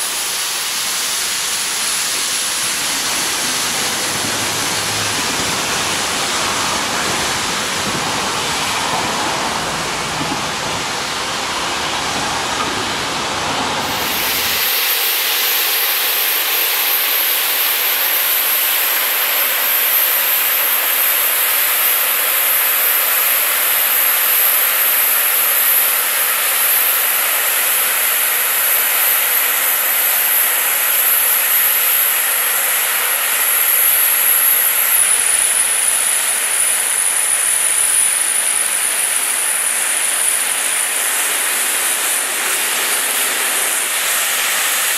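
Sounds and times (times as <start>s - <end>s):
steam hissing: 0.0s - 44.9s.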